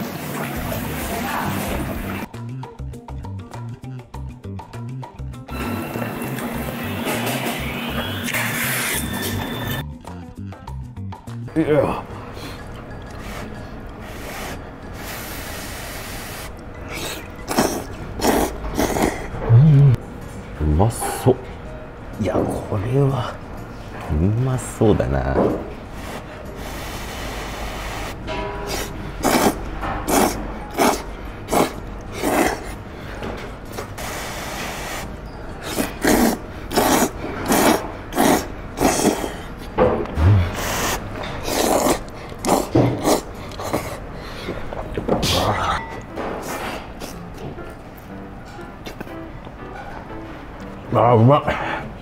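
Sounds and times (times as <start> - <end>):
person slurping noodles: 13.2 - 20.0, 26.1 - 32.8, 35.6 - 39.5, 40.2 - 44.0
voiced mm sound: 40.2 - 43.9.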